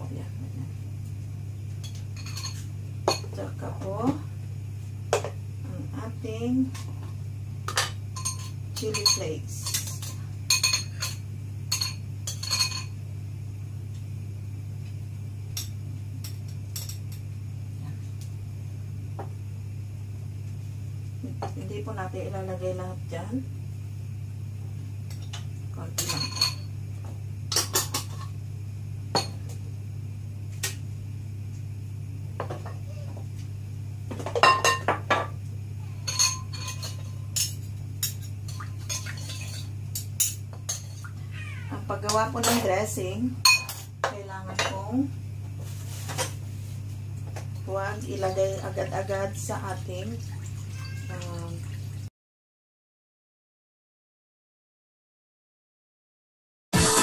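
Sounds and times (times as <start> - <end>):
steady low hum: 0.0 - 52.0
metal spoon clinking against bowl: 8.2 - 12.9.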